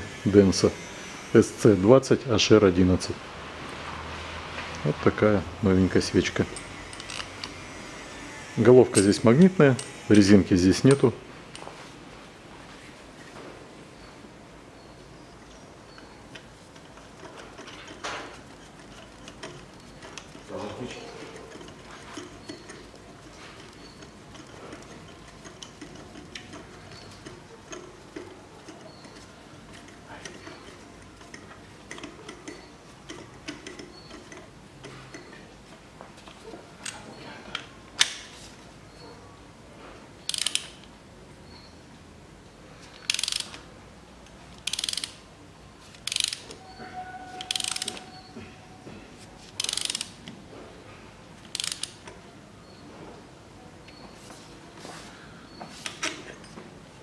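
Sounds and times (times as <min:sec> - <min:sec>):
tool handling noise: 0:06.1 - 0:07.6, 0:08.8 - 0:12.0, 0:15.9 - 0:39.1, 0:45.8 - 0:52.2, 0:53.8 - 0:57.0
hand ratchet clicking: 0:06.3 - 0:07.6, 0:08.8 - 0:11.0, 0:16.3 - 0:35.4, 0:40.3 - 0:40.9, 0:43.0 - 0:43.6, 0:44.6 - 0:45.2, 0:45.9 - 0:46.6, 0:47.4 - 0:48.1, 0:49.5 - 0:50.3, 0:51.4 - 0:52.1
sharp metal click: 0:40.2 - 0:40.9.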